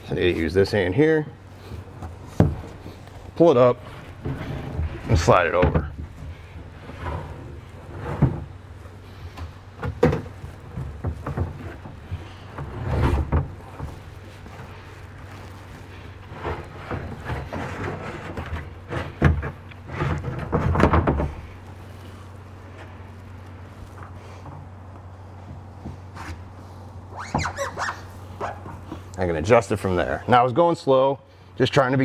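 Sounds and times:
steady low hum: 0.0s - 32.0s
kayak scraping against metal: 1.4s - 24.9s, 25.7s - 30.2s.

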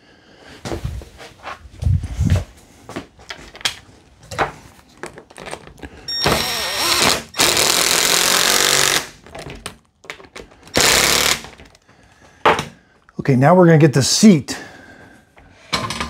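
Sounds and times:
cordless screw gun driving screws: 6.1s - 9.1s, 10.7s - 11.7s.

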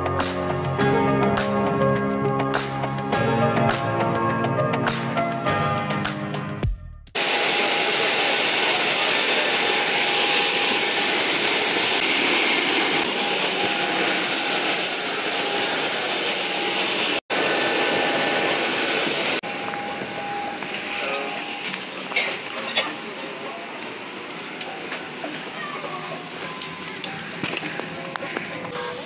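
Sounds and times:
jet turbine running: 7.2s - 29.0s.

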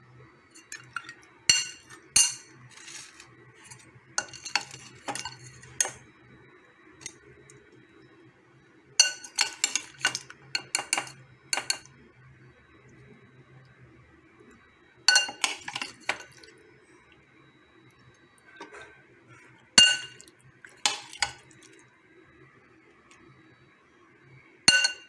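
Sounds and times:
metal spoon clinking on dishes: 0.6s - 6.0s, 9.0s - 11.9s, 15.1s - 16.4s, 19.8s - 21.4s, 24.7s - 25.0s.

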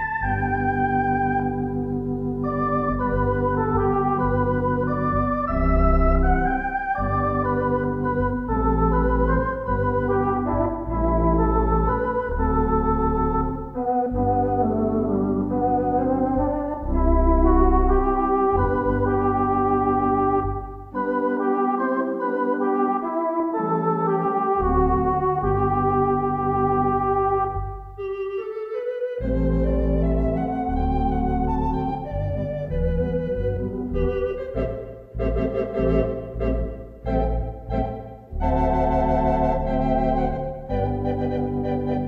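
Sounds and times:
organ bass line: 0.0s - 42.0s
theatre organ chords: 0.0s - 42.0s.

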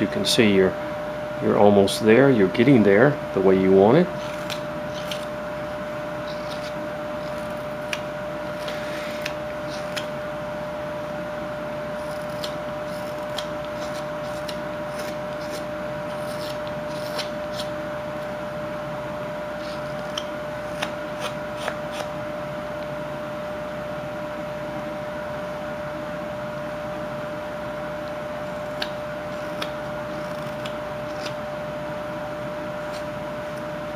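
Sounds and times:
steady background hum: 0.0s - 33.9s
knife scraping and slicing wood: 4.2s - 5.4s, 6.2s - 10.1s, 11.9s - 17.8s, 28.7s - 31.4s.

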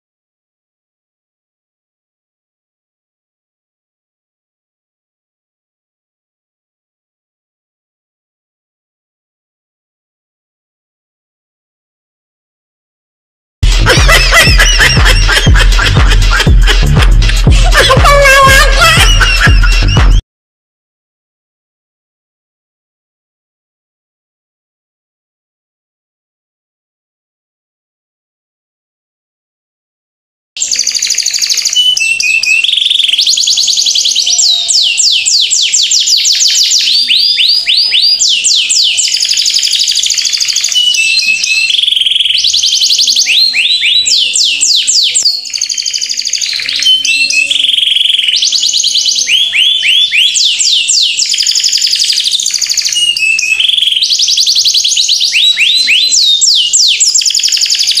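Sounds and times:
high falling chirps: 13.6s - 20.2s.

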